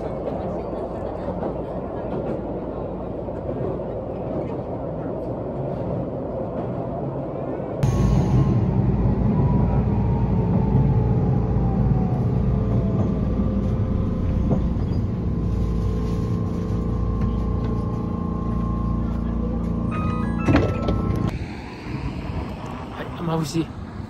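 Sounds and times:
tram rumble and hum: 0.0 - 24.0
tram motor whine: 6.1 - 24.0.

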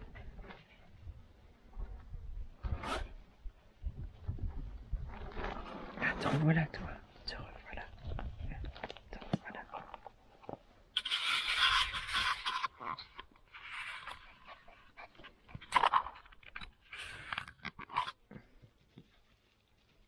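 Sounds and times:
puppy panting and snuffling: 13.6 - 16.3.

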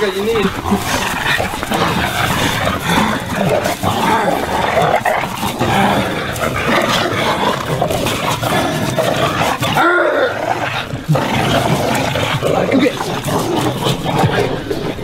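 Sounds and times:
dogs vocalizing in play: 0.0 - 15.0.

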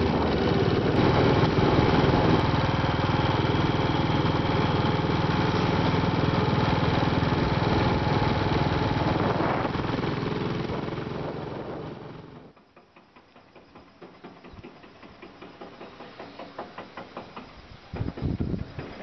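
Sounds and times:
motorcycle engine running: 0.0 - 12.6.

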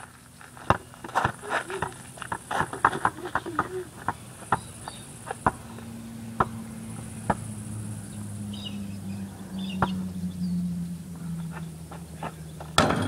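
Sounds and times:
low steady hum: 0.0 - 13.0
basketball bouncing on hard ground: 0.5 - 7.5, 9.8 - 10.0, 12.2 - 13.0.

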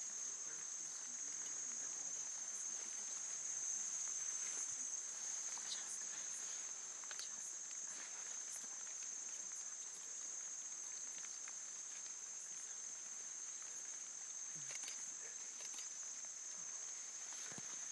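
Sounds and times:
insects droning: 0.0 - 17.9
rustles of vegetation: 0.0 - 17.9
faint clicks: 5.4 - 17.8.

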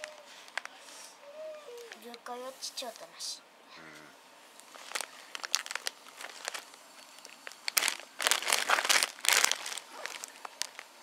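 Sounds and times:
plastic snack bag crinkling: 0.0 - 0.8, 4.6 - 11.0.

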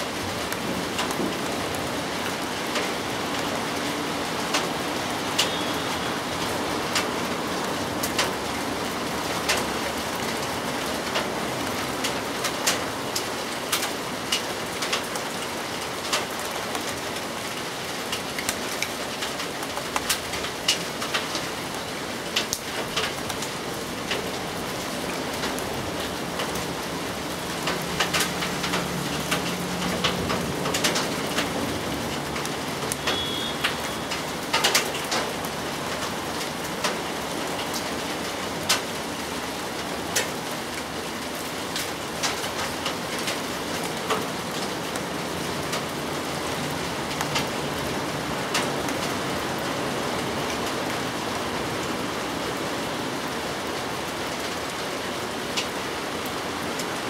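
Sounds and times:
steady rain: 0.0 - 57.0.

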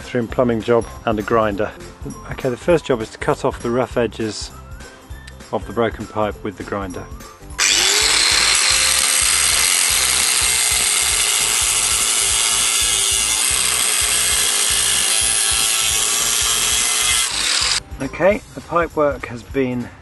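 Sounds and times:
angle grinder cutting clay pipe: 7.6 - 17.8.

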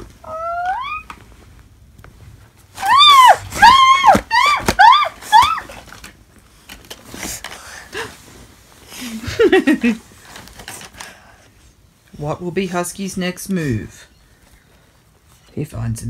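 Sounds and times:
high-pitched yelping cries: 0.2 - 1.1.

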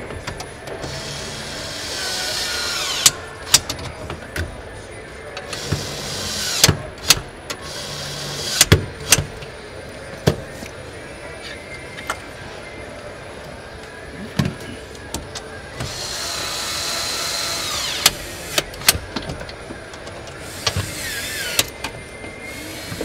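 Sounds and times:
small power tool whirring: 0.9 - 3.2, 15.8 - 18.7, 20.5 - 21.7.

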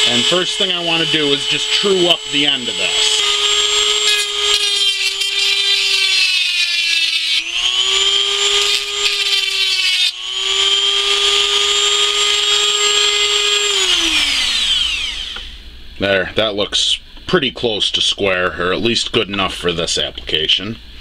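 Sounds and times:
rotary tool grinding metal: 0.0 - 15.5.

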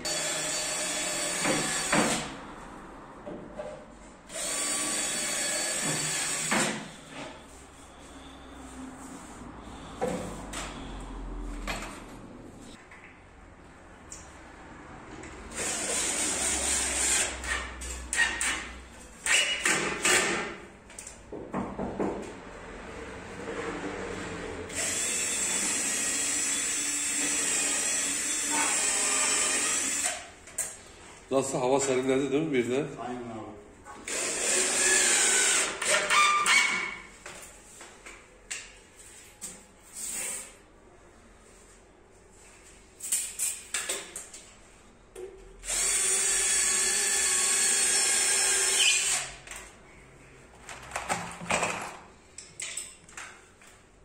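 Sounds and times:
cordless drill running: 0.0 - 2.1, 4.3 - 6.6, 24.7 - 30.2, 34.1 - 36.0, 45.6 - 49.3.

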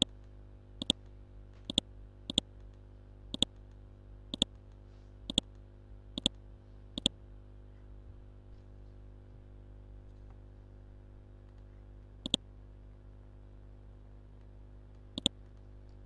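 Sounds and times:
low electrical hum: 0.0 - 16.0
mouse button clicks: 1.7 - 2.5, 3.4 - 3.6, 15.2 - 15.4.

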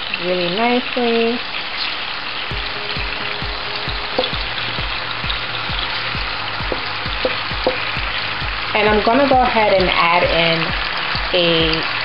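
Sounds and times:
vegetables sizzling in a pan: 0.0 - 12.0
low thumps: 2.5 - 10.0.

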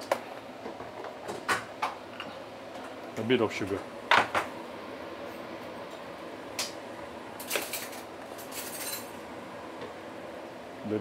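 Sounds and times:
kitchen utensils clinking and scraping: 7.4 - 9.2.

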